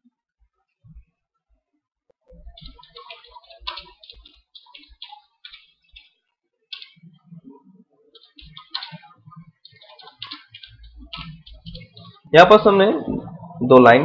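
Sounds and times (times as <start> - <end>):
typing on computer keyboard: 2.6 - 6.1, 6.7 - 7.0, 8.1 - 12.3.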